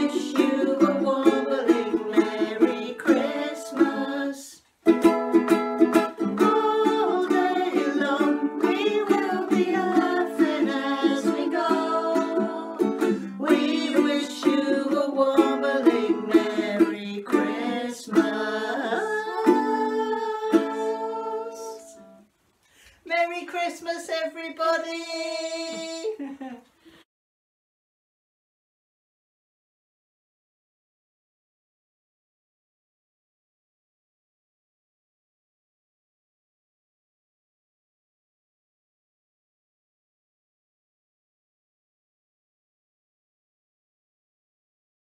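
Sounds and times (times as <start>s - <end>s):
voices singing along: 0.0s - 4.6s, 6.2s - 22.2s
ukulele strumming: 0.0s - 22.2s.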